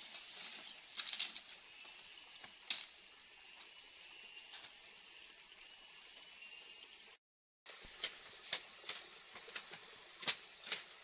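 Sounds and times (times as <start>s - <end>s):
footsteps crunching through dry leaves: 0.0s - 1.7s
rustle: 0.0s - 5.0s, 7.7s - 11.0s.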